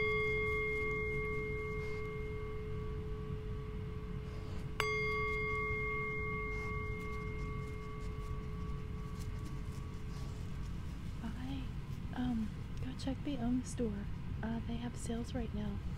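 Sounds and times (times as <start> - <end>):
singing bowl ringing: 0.0 - 10.4.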